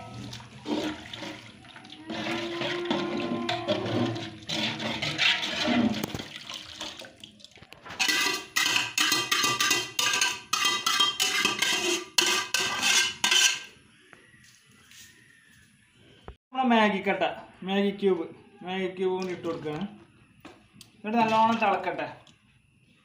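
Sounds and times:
water sloshing in a pot: 0.0s - 13.7s, 19.0s - 20.2s, 21.0s - 22.4s
metal spoon scraping a pot: 2.1s - 6.3s, 7.9s - 13.7s.

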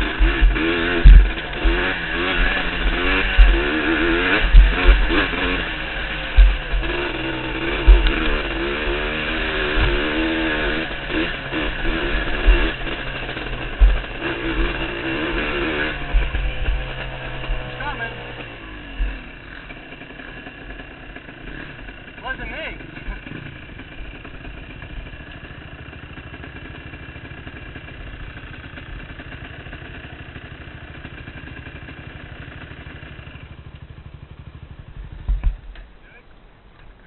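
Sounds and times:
dirt bike engine revving: 0.0s - 35.9s
low thumps on helmet camera: 0.2s - 3.6s, 4.4s - 5.1s, 6.3s - 6.9s, 13.7s - 14.6s, 35.1s - 35.9s.

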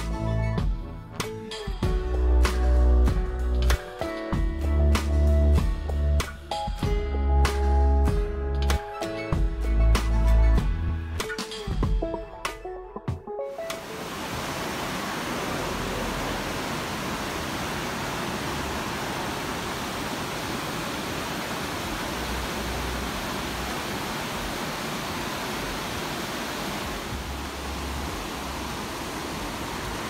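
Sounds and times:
river rushing over rocks: 13.7s - 30.0s.

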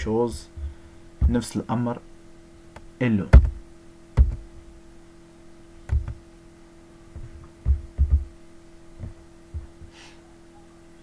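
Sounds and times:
steady electrical hum: 0.0s - 11.0s
dull thumps on desk: 1.2s - 1.5s, 3.3s - 3.6s, 7.2s - 8.3s.

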